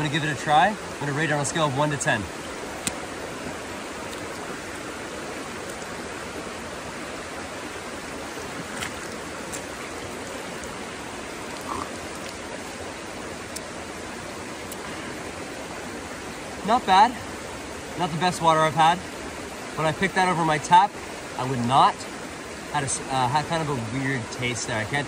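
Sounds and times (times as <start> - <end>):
creek flowing over rock: 0.0 - 25.0
water splashing by hand: 8.4 - 12.7.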